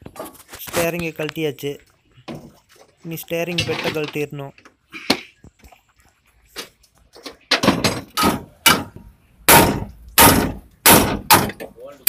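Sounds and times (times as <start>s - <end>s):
hammer striking steel: 8.2s - 11.6s.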